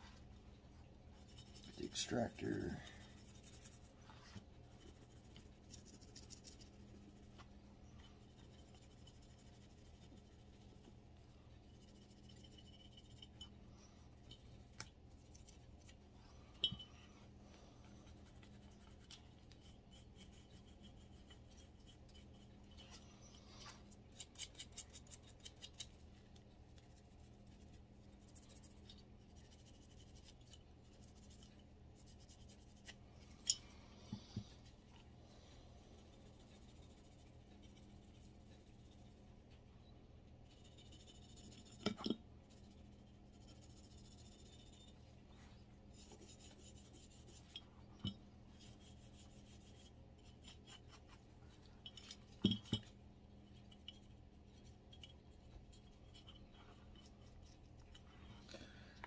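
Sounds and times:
brush scrubbing metal: 1.2s - 13.5s, 17.8s - 26.1s, 53.4s - 58.1s.

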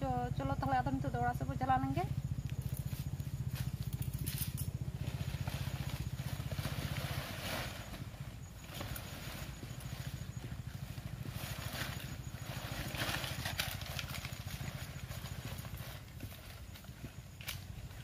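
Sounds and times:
steady low rumble: 0.0s - 12.9s
leafy branches rustling: 2.5s - 18.0s.

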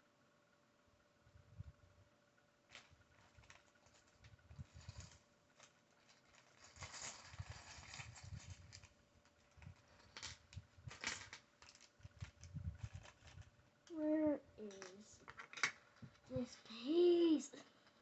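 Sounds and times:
plastic bag rustling: 2.7s - 13.6s.

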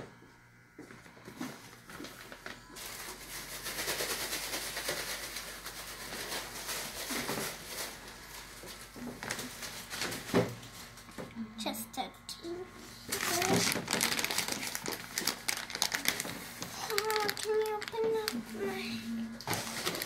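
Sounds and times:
plastic bag crinkling: 2.0s - 11.0s, 13.1s - 18.8s, 19.4s - 20.0s.

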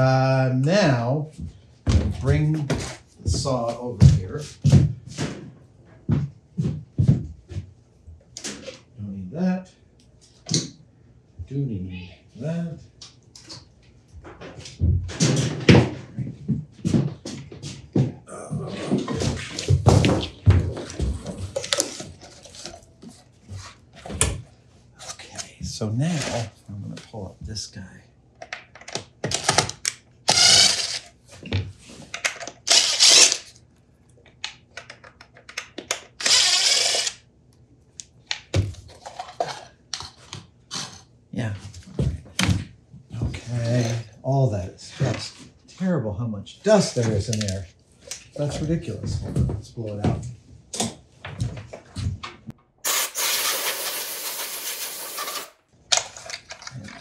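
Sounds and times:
compressed air hissing: 52.8s - 55.5s.

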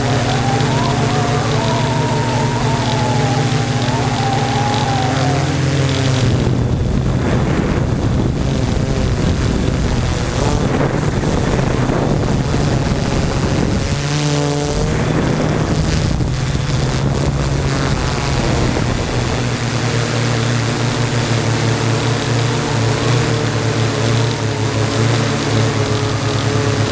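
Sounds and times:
wind rushing over microphone: 0.0s - 22.2s
drone propellers buzzing: 0.0s - 26.9s.

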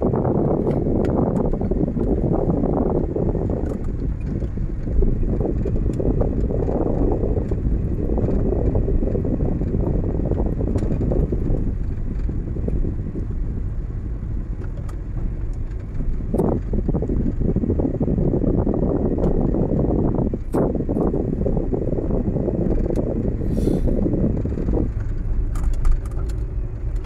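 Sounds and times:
car engine and road noise: 0.0s - 27.0s.

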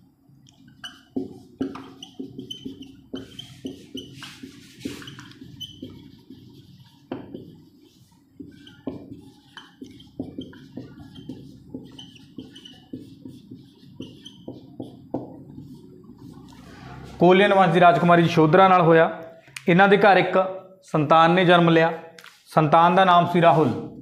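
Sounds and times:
marker squeaking on whiteboard: 0.6s - 17.8s.

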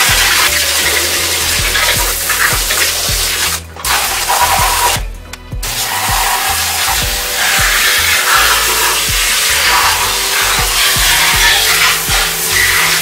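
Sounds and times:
hiss of liquid spray: 0.0s - 5.0s, 5.6s - 13.0s
background music with steady beat: 0.0s - 13.0s.

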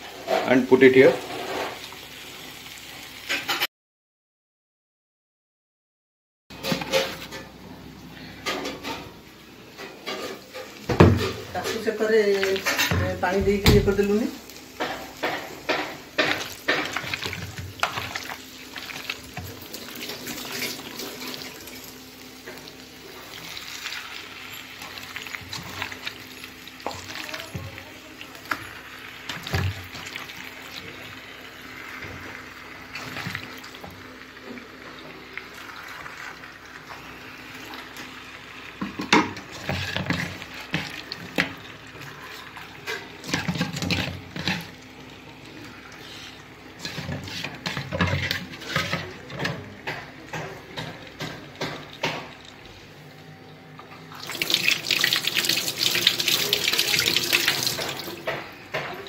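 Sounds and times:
chicken frying in pan: 0.0s - 3.7s, 8.6s - 52.8s, 54.2s - 59.0s
wooden spatula knocking and scraping: 46.8s - 52.4s.

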